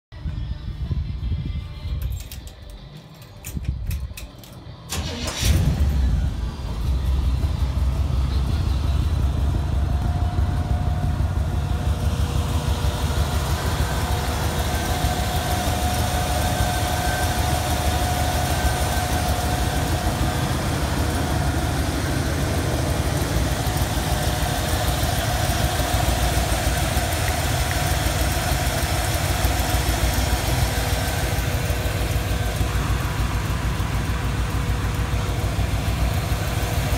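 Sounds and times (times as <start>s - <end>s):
engine idling: 0.2s - 36.9s
engine cranking and starting: 2.0s - 8.4s.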